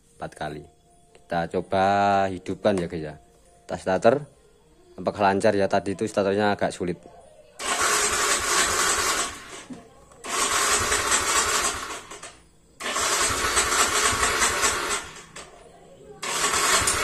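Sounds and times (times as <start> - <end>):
scooter engine electric starter: 7.6 - 15.6, 16.2 - 17.0.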